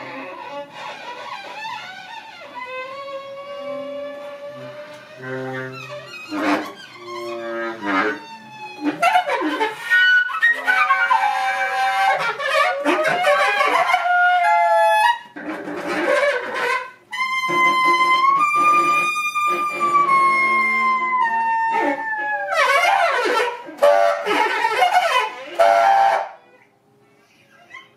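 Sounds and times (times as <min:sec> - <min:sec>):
wind instruments chamber music: 0:16.0 - 0:26.5.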